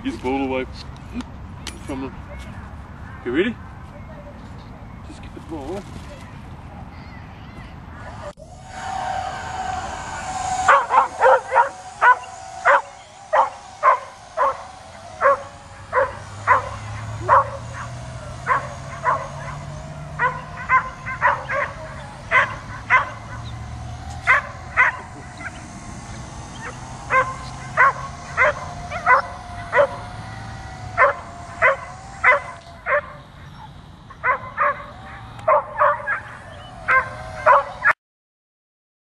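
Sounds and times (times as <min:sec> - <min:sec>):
dog barking: 0:35.5 - 0:36.2.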